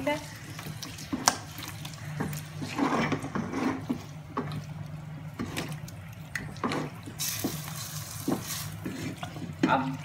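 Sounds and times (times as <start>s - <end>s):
spatula scraping steel pot: 2.6s - 4.1s.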